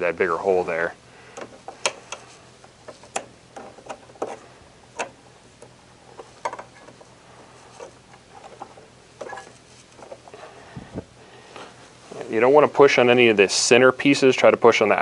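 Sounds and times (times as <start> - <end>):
metal clicks and knocks: 1.4 - 7.1.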